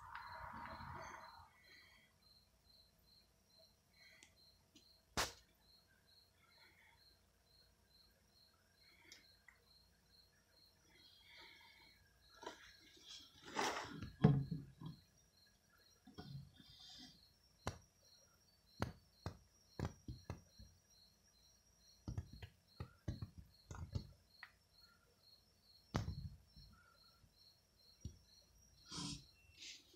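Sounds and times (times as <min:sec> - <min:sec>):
faint high chirp: 0:00.0 - 0:13.3, 0:25.8 - 0:29.9
sharp clicks and soft knocks: 0:22.0 - 0:24.6.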